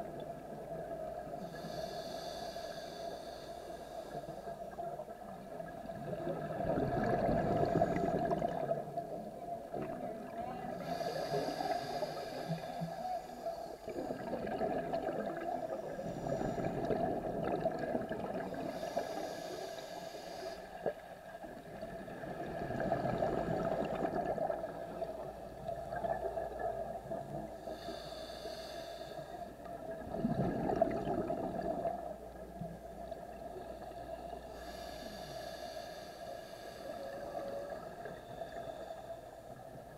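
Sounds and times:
regulator inhale hiss: 0:01.3 - 0:05.1, 0:07.4 - 0:08.8, 0:10.7 - 0:14.3, 0:15.1 - 0:17.3, 0:18.4 - 0:21.2, 0:26.0 - 0:29.7, 0:33.4 - 0:39.9
exhaled bubbles gurgling: 0:04.7 - 0:12.8, 0:13.8 - 0:19.3, 0:20.8 - 0:28.1, 0:29.6 - 0:34.0.

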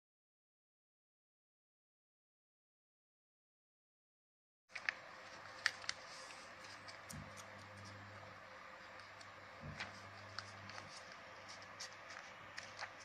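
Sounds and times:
paper folds clicking and tapping: 0:04.7 - 0:08.2, 0:08.8 - 0:13.0
paper handling hiss: 0:04.7 - 0:13.0.

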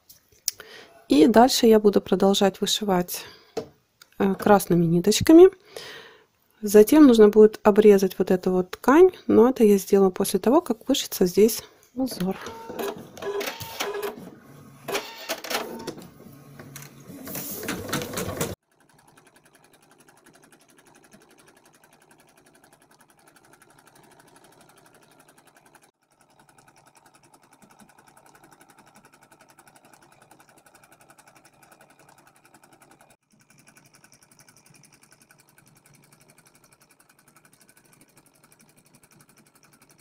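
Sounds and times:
embroidery machine needle clatter: 0:17.7 - 0:40.0.

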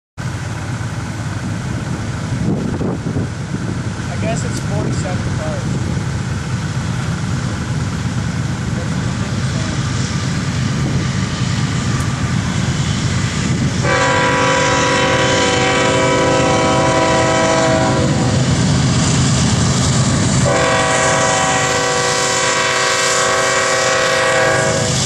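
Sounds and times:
diesel locomotives rumbling: 0:00.2 - 0:25.0
train air horn blasts: 0:13.8 - 0:18.5, 0:20.4 - 0:25.0.

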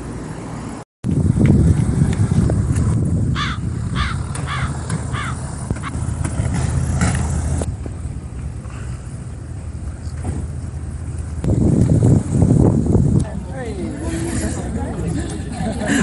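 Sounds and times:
wind rumble on microphone: 0:01.0 - 0:16.0
cartoon crow cawing: 0:03.4 - 0:05.9.

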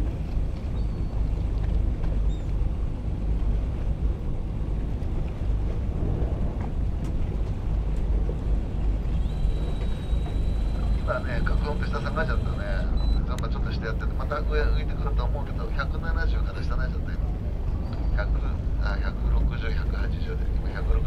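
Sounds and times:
wind buffeting microphone: 0:00.0 - 0:13.2
boat engine running: 0:00.0 - 0:21.0
thin high whine: 0:09.0 - 0:16.5.

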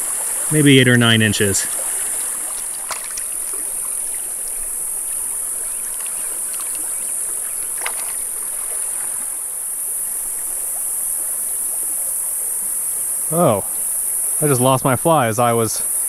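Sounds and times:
creek water over rocks: 0:00.0 - 0:14.4.

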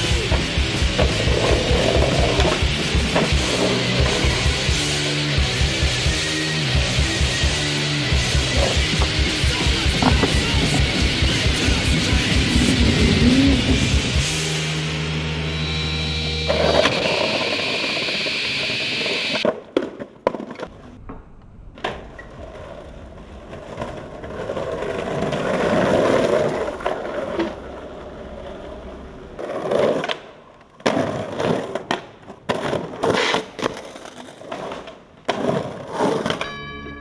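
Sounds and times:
skateboard wheels rolling on pavement: 0:00.0 - 0:14.3, 0:15.6 - 0:36.7
skateboard clacks: 0:08.2 - 0:12.5, 0:29.4 - 0:36.6.

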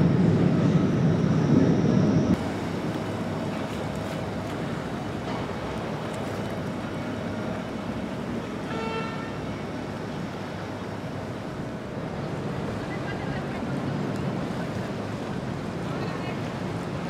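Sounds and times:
outboard boat engines rumbling: 0:00.0 - 0:17.0
hull wash splashing: 0:02.3 - 0:17.0.

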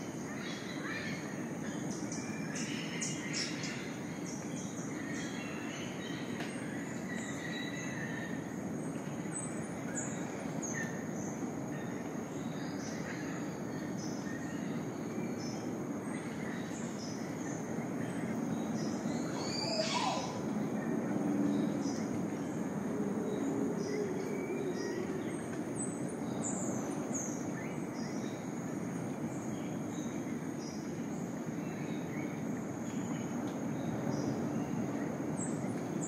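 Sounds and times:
bird calls and chirps: 0:00.2 - 0:22.6.

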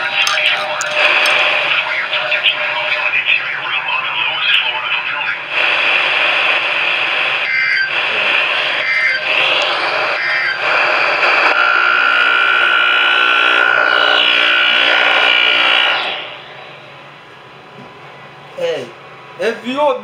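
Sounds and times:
held tone: 0:00.0 - 0:01.7
radio static hiss: 0:00.0 - 0:11.8.

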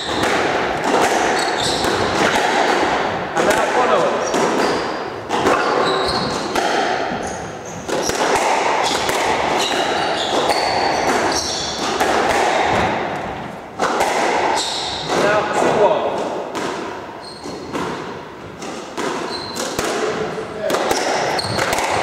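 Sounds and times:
ball slapping off walls: 0:00.0 - 0:22.0
squash ball struck by rackets: 0:00.0 - 0:22.0
shoes squeaking on wooden floor: 0:01.1 - 0:02.4, 0:03.9 - 0:12.0, 0:14.5 - 0:15.4, 0:17.2 - 0:19.8, 0:20.8 - 0:22.0.

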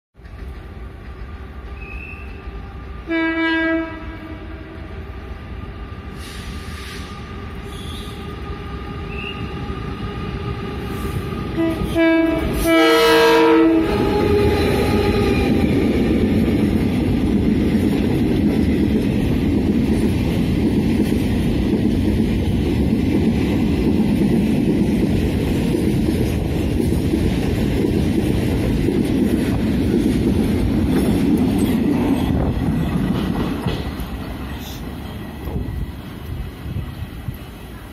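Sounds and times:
train wheels rumbling on rails: 0:00.2 - 0:37.9
train horn blasts: 0:03.0 - 0:05.1, 0:11.6 - 0:15.6.

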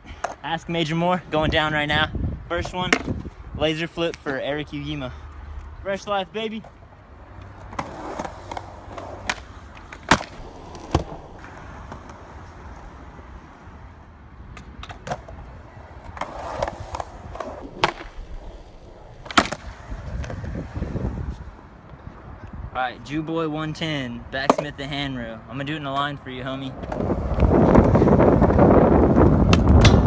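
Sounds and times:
skateboard wheels on concrete: 0:00.0 - 0:22.3, 0:23.4 - 0:30.0
skateboard clacking: 0:07.7 - 0:12.3.

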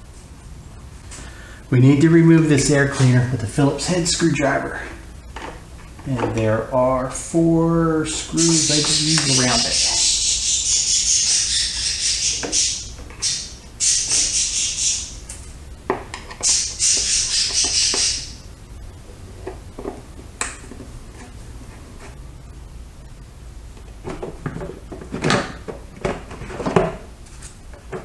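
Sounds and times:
screwdriver squeaky scraping: 0:16.4 - 0:18.3.

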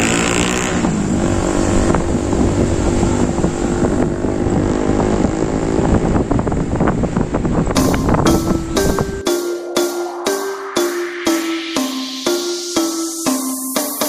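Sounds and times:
vehicle engines running: 0:00.0 - 0:08.4
road noise: 0:00.0 - 0:14.0
steady drone: 0:07.8 - 0:14.0.

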